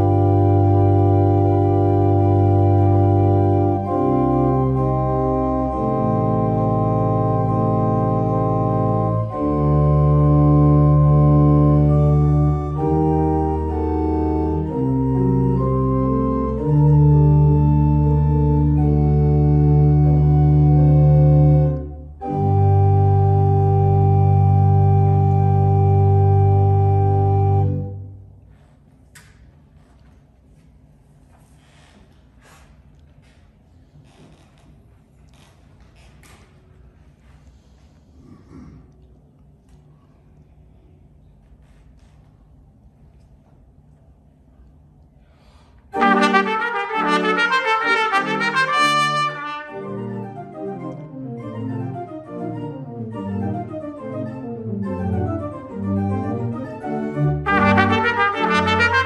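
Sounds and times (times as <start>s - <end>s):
pipe organ chords: 0.0s - 28.4s, 46.0s - 59.0s.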